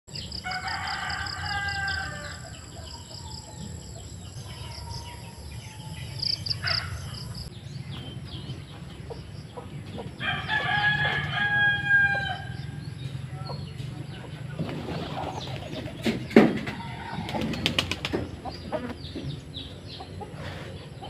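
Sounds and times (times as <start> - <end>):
small birds chirping: 0.1 - 21.0
rooster crowing: 0.2 - 7.5, 10.2 - 12.9, 16.5 - 17.6.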